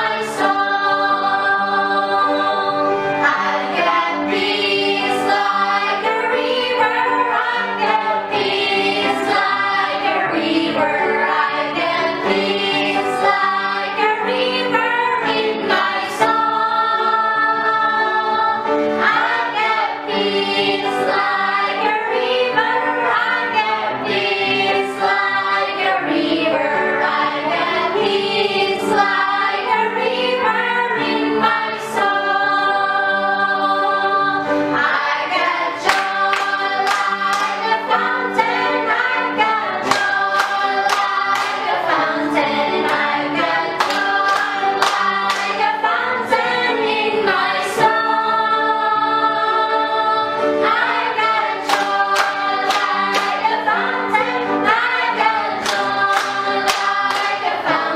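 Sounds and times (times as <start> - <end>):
group singing gospel song: 0.0 - 57.9
hand claps in time: 35.8 - 37.8, 39.8 - 41.8, 55.6 - 57.6.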